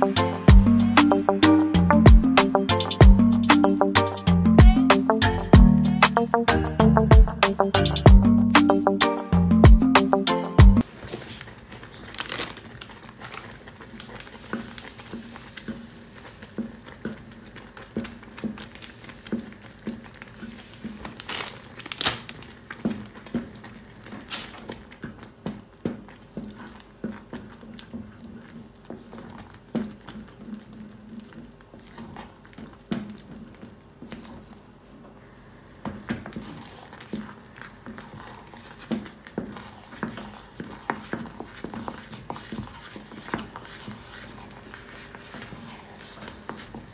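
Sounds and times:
spoon stirring thick dough: 24.6 - 34.8, 35.9 - 46.9.

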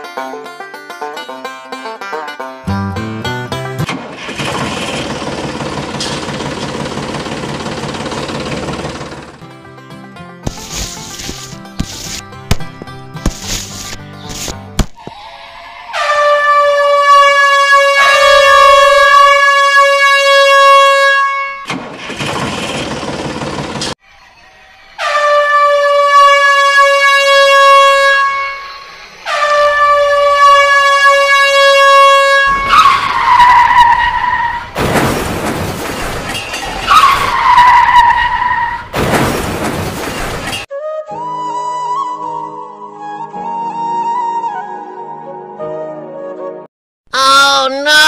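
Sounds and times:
toy train electronic whistle: 15.0 - 19.6, 24.0 - 33.9.

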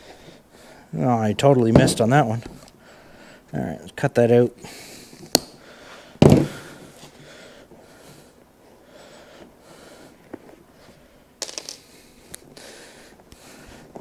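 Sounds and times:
sharp snap: 5.3 - 5.6.

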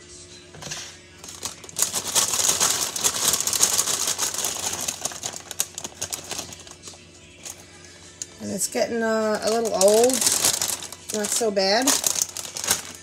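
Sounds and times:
plastic bag crinkling: 1.2 - 7.6, 9.2 - 13.0.

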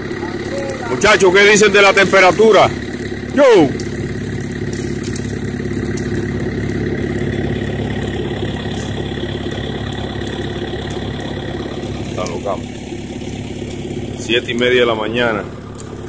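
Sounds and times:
engine idling: 0.0 - 16.0
faint clicks and snaps: 3.8 - 11.4, 15.7 - 16.0.

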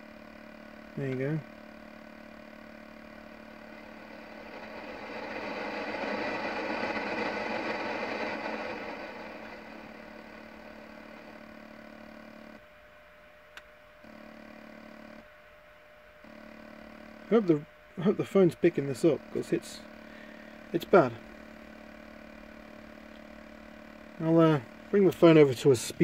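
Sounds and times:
steady electrical whine: 0.0 - 26.0
radio static: 0.9 - 12.6, 16.3 - 22.8.

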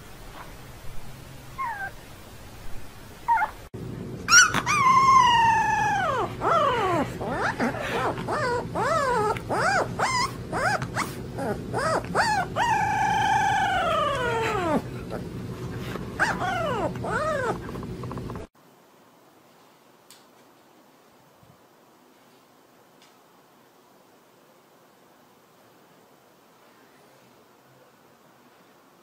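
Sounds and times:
puppy howling: 1.6 - 2.0, 3.3 - 3.6, 4.3 - 18.5
puppy yelping: 1.6 - 2.0, 3.3 - 3.6, 4.3 - 18.5.

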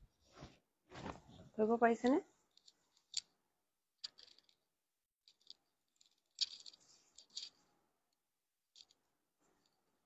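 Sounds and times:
cloth rustling: 0.0 - 1.6.

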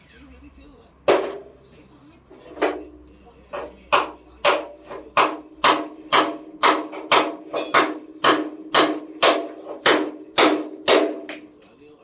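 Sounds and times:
hammer blows on ringing steel frame: 3.9 - 11.5.

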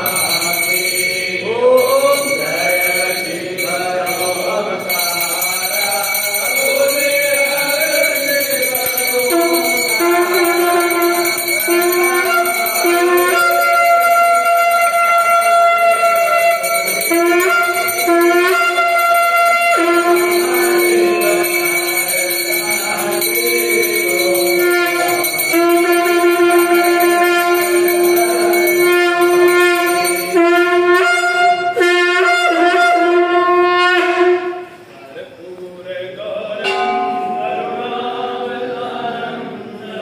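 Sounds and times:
conch shell blasts: 9.0 - 34.8.

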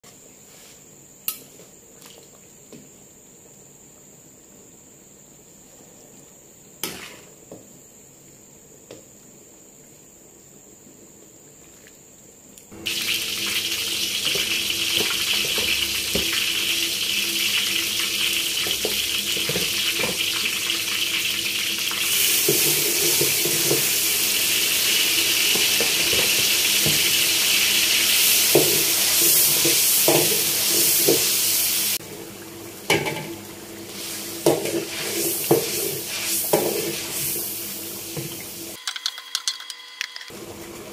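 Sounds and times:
spices sizzling in hot oil: 12.7 - 38.8.

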